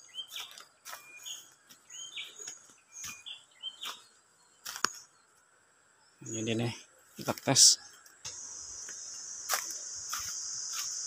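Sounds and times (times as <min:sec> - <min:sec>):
footsteps crunching on dry leaves: 0:00.0 - 0:05.0, 0:08.4 - 0:11.0
birds chirping: 0:00.0 - 0:11.0.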